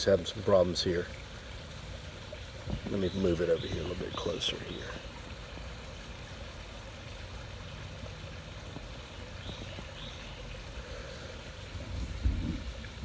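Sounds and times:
faint hiss: 0.0 - 13.0
low outdoor rumble: 10.8 - 13.0.

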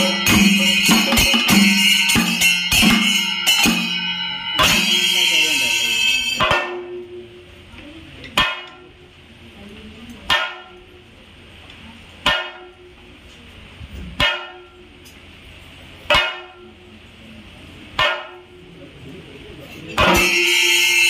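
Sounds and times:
drum and cymbal strokes: 0.0 - 7.6, 20.0 - 21.0.

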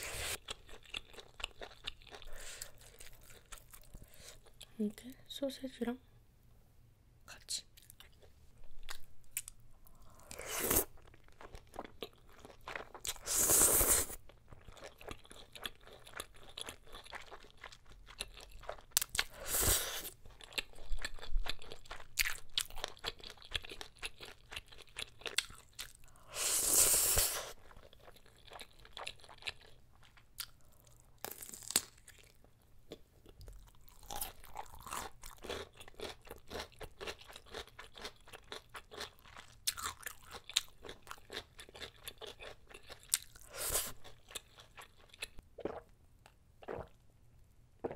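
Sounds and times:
wet chewing with crunches: 10.3 - 26.0, 33.5 - 45.8.

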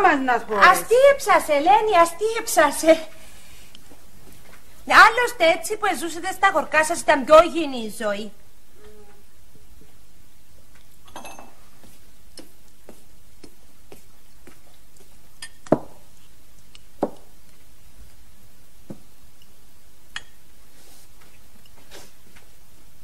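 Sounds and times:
cutlery and dishes clinking: 11.1 - 11.6.

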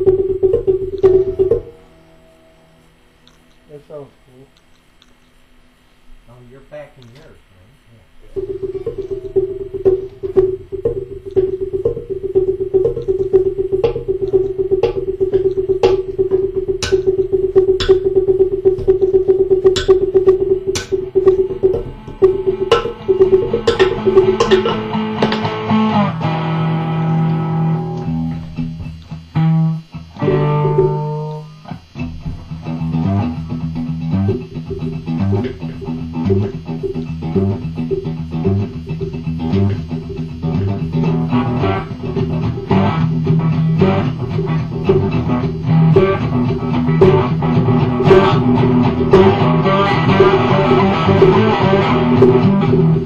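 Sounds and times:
log drum wooden strikes: 0.0 - 1.8, 8.4 - 25.9
cigar box guitar riff: 8.4 - 53.0.

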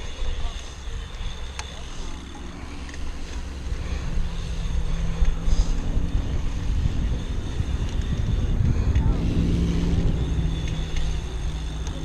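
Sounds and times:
bike rolling on dirt: 0.0 - 12.0
wind rumbling over microphone: 2.4 - 12.0.

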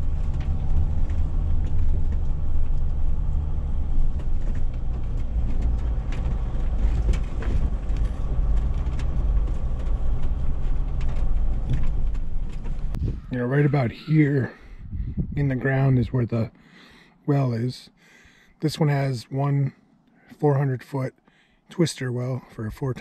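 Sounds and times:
small clicks and rattles: 0.0 - 13.0
vehicle engine and road rumble: 0.0 - 23.0.

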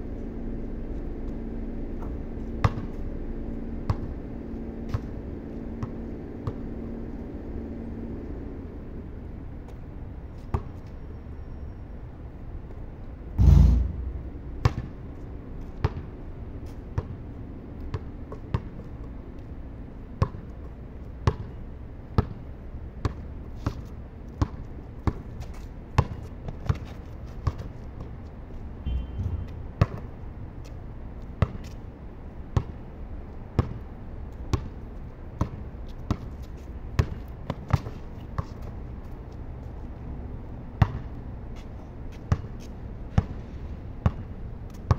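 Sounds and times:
basketball bouncing on concrete: 2.6 - 2.9, 5.8 - 6.6, 13.4 - 14.9, 15.8 - 16.1, 21.2 - 21.6, 22.2 - 22.4, 24.4 - 25.4, 26.0 - 28.1, 28.9 - 30.2, 31.4 - 31.8, 32.6 - 32.8, 33.6 - 33.8, 35.4 - 36.3, 37.0 - 38.6, 40.8 - 41.1, 42.2 - 43.3, 44.0 - 44.9
loud rushing thump: 13.4 - 14.8.

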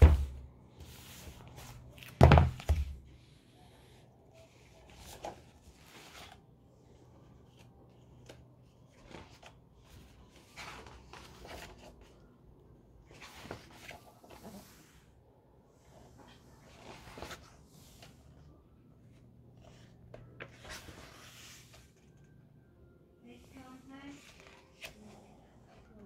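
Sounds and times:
book pages turning: 4.4 - 12.3, 13.0 - 14.6, 16.0 - 18.4, 19.1 - 22.4, 24.1 - 26.0.

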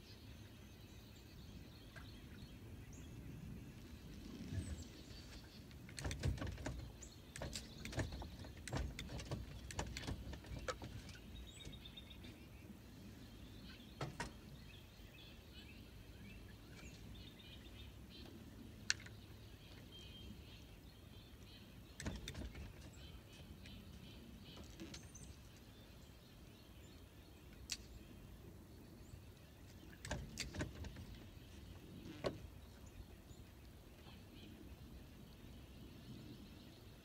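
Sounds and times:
knocks and clicks of fishing gear: 5.9 - 11.8, 14.0 - 14.4, 22.0 - 22.9, 29.9 - 31.2.

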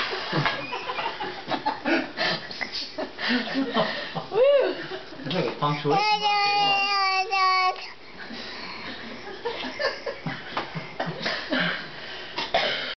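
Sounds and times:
toddler's long high vocal note: 5.8 - 8.0.

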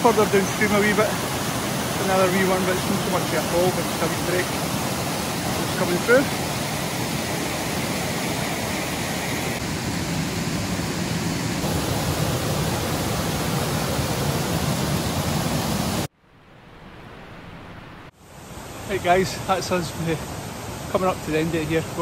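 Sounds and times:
water rushing over rocks: 0.0 - 16.1
faint falling water: 0.0 - 22.0.

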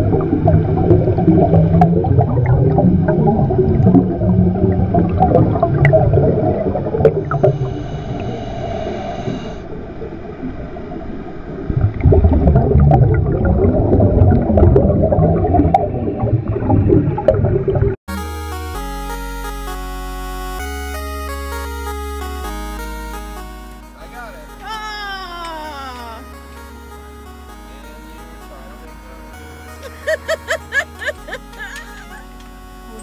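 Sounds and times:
bubbling and gurgling water: 0.0 - 18.0
high ringing tone: 7.3 - 9.7, 20.6 - 33.0
video game music: 18.1 - 33.0.

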